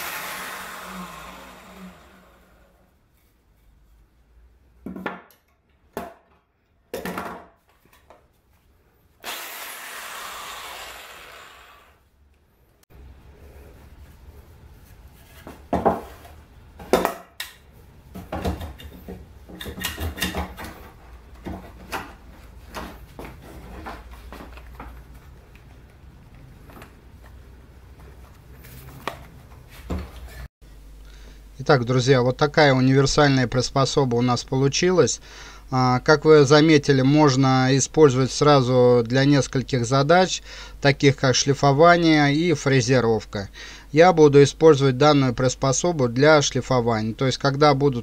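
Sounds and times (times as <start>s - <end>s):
wood pieces knocking on workbench: 4.8s - 5.3s, 6.0s - 7.6s, 15.5s - 16.2s.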